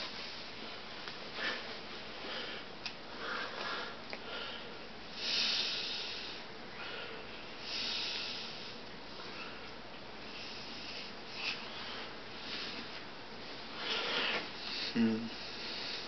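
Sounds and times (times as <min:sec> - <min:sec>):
person breathing and sniffing: 0:13.7 - 0:16.0.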